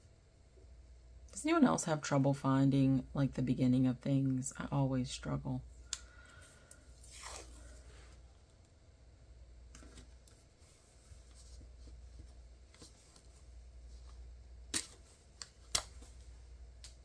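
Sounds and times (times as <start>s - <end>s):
tape rubbing and rustling on paper: 7.0s - 7.8s.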